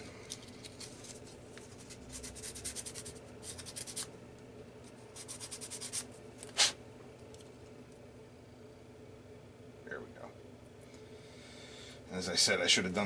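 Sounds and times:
sandpaper scratching: 1.0 - 4.1, 5.2 - 6.8.

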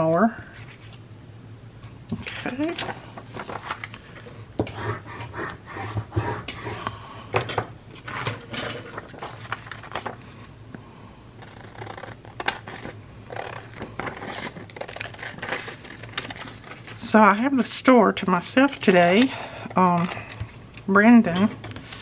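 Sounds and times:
faint steady hum: 0.0 - 22.0
paper rustling: 2.2 - 4.2, 8.0 - 10.2.

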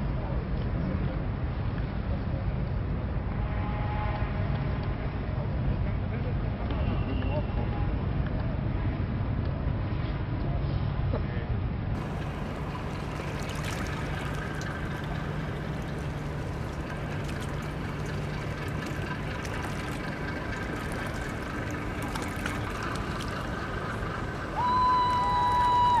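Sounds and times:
tugboat engines humming: 12.0 - 26.0
water sloshing and lapping: 12.0 - 26.0.

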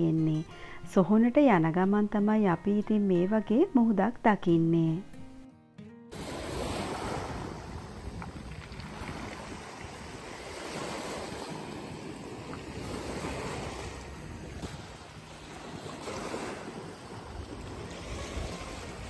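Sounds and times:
sea waves washing onto shore: 6.1 - 19.0
wind buffeting microphone: 6.2 - 19.0.

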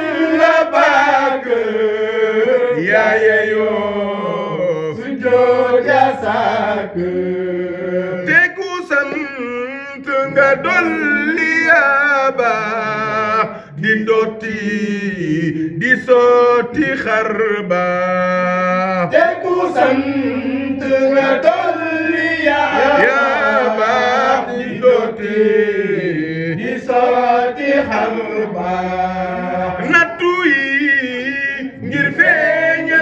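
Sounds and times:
men chanting: 0.0 - 33.0
man singing melismatic lines: 8.2 - 19.1, 29.3 - 33.0.

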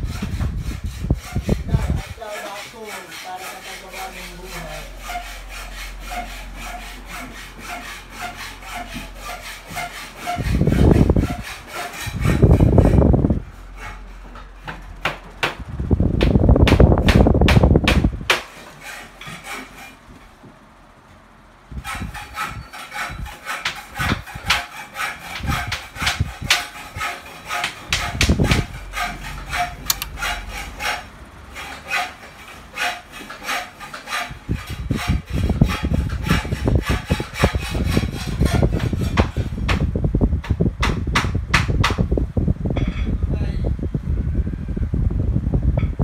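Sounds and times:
air buffeting microphone: 0.0 - 2.3, 10.3 - 18.3, 34.5 - 46.0
electric fan running: 0.0 - 46.0
clicking rattle: 29.9 - 30.2.

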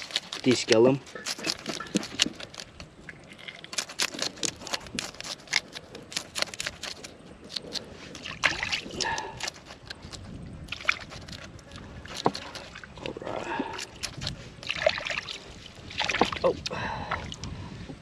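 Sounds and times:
knife scraping fish scales: 0.0 - 12.9
water lapping faintly: 0.0 - 18.0.

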